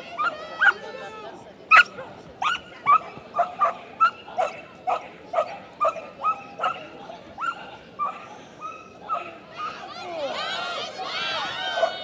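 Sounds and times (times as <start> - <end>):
dog barking: 1.7 - 6.8.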